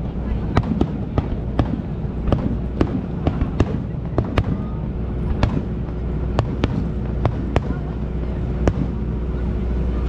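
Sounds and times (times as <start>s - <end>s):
steady low rumble: 0.0s - 10.0s
firework shells bursting: 0.5s - 7.9s.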